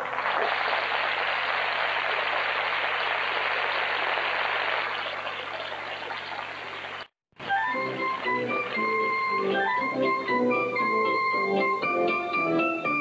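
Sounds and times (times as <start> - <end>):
theatre audience applauding: 0.0 - 6.6
organ music: 7.4 - 13.0.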